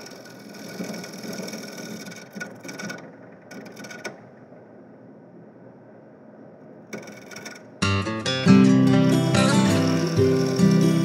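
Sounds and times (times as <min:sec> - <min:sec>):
turning tool scraping wood: 0:00.0 - 0:04.1, 0:09.6 - 0:11.0
wood lathe running: 0:00.0 - 0:04.2, 0:08.6 - 0:11.0.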